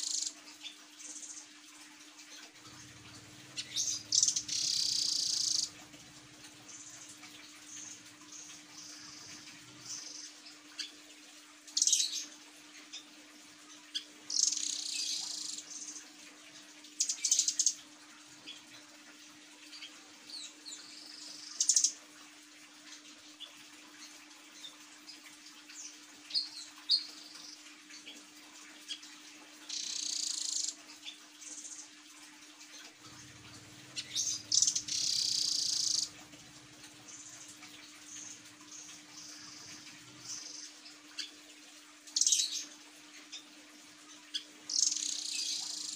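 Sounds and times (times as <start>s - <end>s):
faint steady hum: 0.0s - 45.9s
bird trilled chirps: 3.6s - 5.7s, 34.0s - 36.1s.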